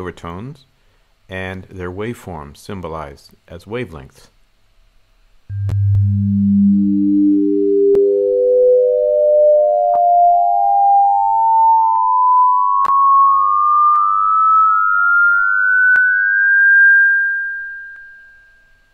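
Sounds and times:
electronic pure tones stepping upward: 0:05.5 - 0:18.6.

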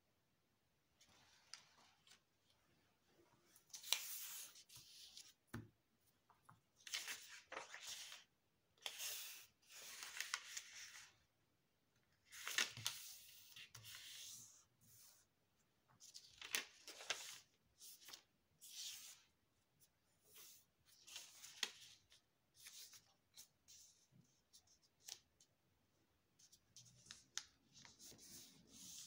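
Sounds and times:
paper rustling and crinkling: 0:06.8 - 0:11.1, 0:12.2 - 0:14.2, 0:16.0 - 0:19.2.

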